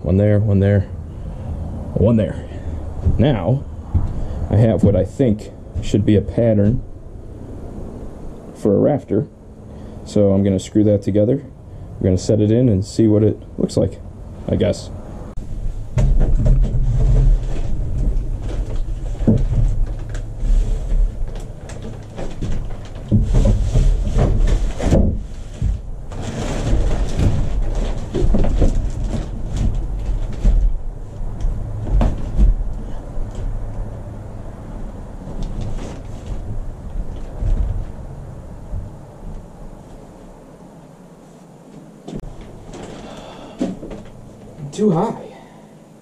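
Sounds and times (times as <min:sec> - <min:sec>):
steady low rumble: 0:00.0 - 0:26.2
lumber knocking and scraping: 0:02.6 - 0:06.9, 0:15.4 - 0:33.6
footsteps on plywood floor: 0:03.0 - 0:05.0, 0:05.8 - 0:06.0.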